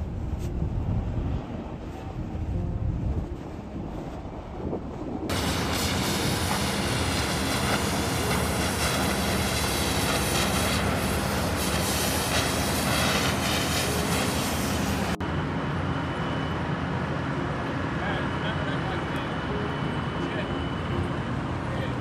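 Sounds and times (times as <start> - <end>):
low machinery hum: 0.0 - 22.0
cutting torch hissing: 5.3 - 15.2.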